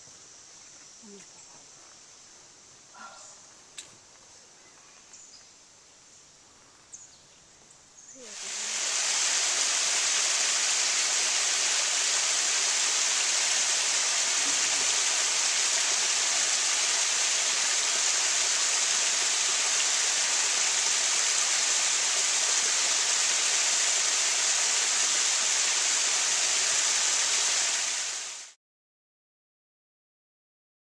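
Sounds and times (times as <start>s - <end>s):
waterfall rushing into pool: 8.2s - 28.6s.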